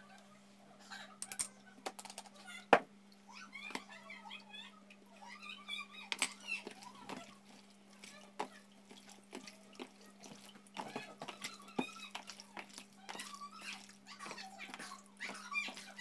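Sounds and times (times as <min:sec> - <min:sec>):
wet squishing of hand mixing meat: 0:03.3 - 0:16.0.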